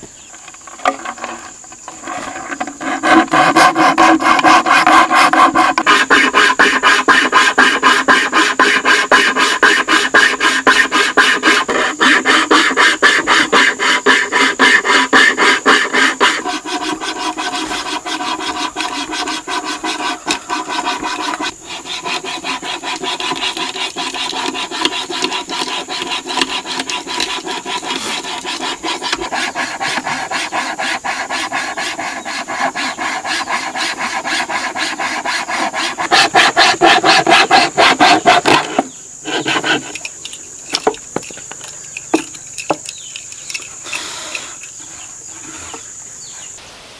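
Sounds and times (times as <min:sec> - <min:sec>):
hand saw rasping through wood: 0:00.8 - 0:40.0.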